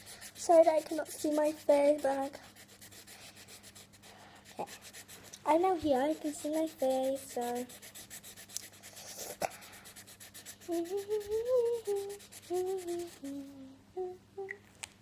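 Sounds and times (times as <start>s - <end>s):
marker scratching on paper: 0.0s - 13.2s
child humming: 10.6s - 14.6s.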